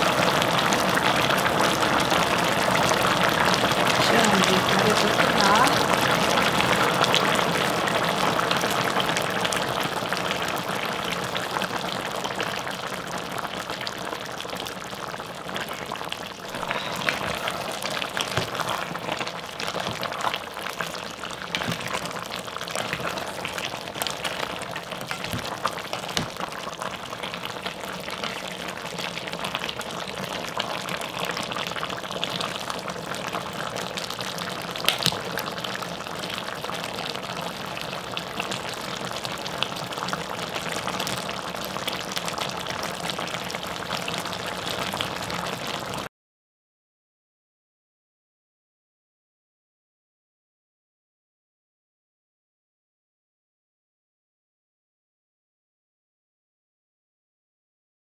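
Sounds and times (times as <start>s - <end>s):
stew bubbling in a pot: 0.0s - 46.1s.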